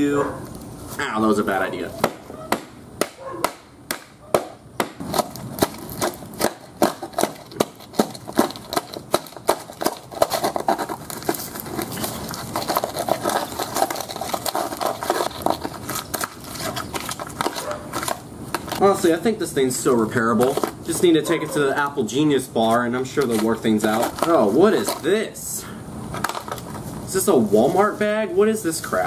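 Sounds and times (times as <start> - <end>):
crunching and crackling of internals: 2.0 - 19.2.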